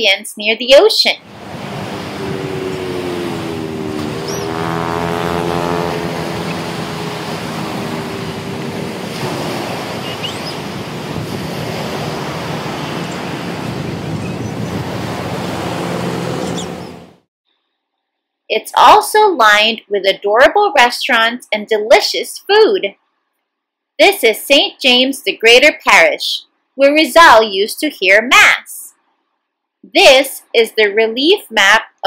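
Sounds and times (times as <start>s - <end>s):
wind buffeting microphone: 1.2s - 17.1s
faint motor hum: 1.2s - 17.2s
sea waves breaking: 1.2s - 17.2s.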